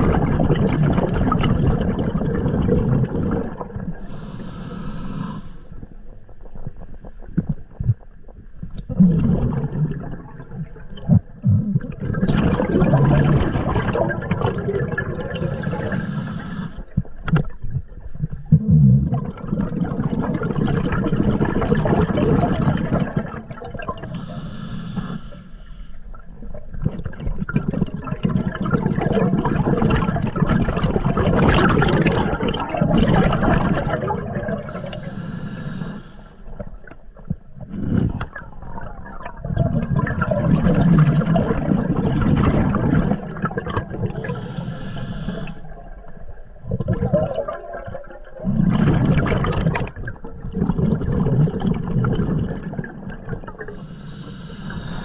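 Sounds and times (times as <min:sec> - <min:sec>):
exhaled bubbles gurgling underwater: 0:00.0 - 0:55.0
hissing inhalations through regulator: 0:04.0 - 0:05.8, 0:15.2 - 0:16.9, 0:24.0 - 0:26.2, 0:34.5 - 0:36.6, 0:44.1 - 0:45.7, 0:53.5 - 0:55.0.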